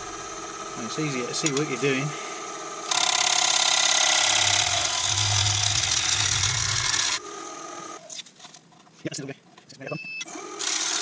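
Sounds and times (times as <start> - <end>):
wood lathe motor whine: 0.0 - 8.0, 10.3 - 11.0
gouge cutting wood: 2.9 - 7.2.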